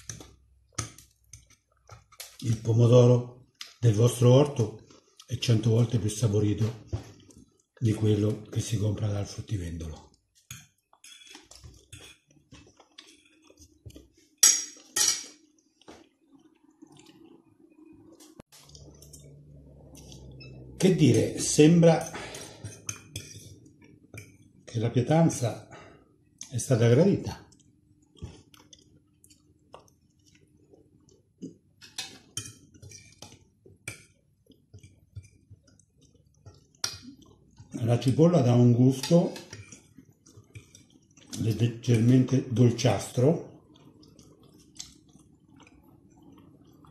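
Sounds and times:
food being chewed: 0:00.0 - 0:02.7, 0:04.8 - 0:05.4, 0:06.6 - 0:08.6, 0:09.8 - 0:20.6, 0:22.4 - 0:24.8, 0:27.4 - 0:38.4, 0:39.0 - 0:42.5, 0:43.5 - 0:46.9
chewing mouth clicks: 0:43.7 - 0:46.9.

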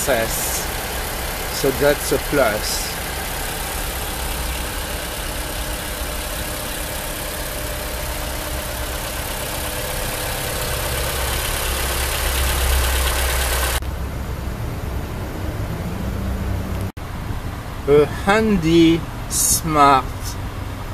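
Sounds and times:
car engine idling: 0:00.0 - 0:15.4.

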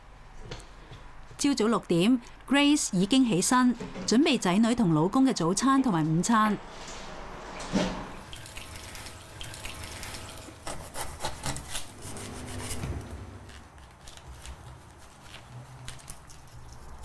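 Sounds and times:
knife cutting fruit on a board: 0:10.6 - 0:12.9.

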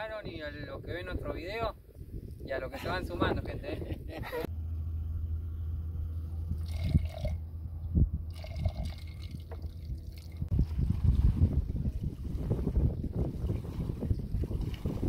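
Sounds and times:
wind rumble on microphone: 0:00.0 - 0:15.0
water splashing and dripping: 0:13.3 - 0:15.0.

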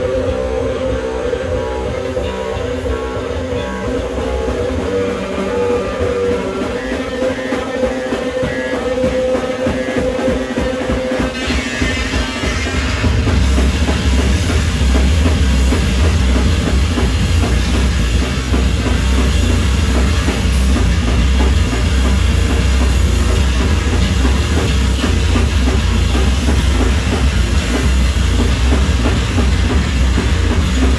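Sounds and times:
distorted electric bass guitar: 0:00.0 - 0:30.9
fast dense drumming: 0:00.0 - 0:30.9.

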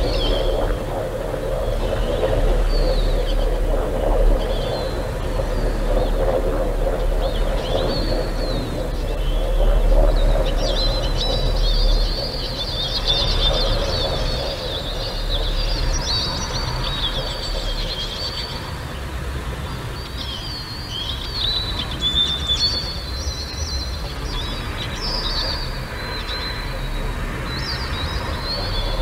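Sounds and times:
birds chirping and twittering: 0:00.0 - 0:29.0
steady low rumble: 0:00.0 - 0:29.0.

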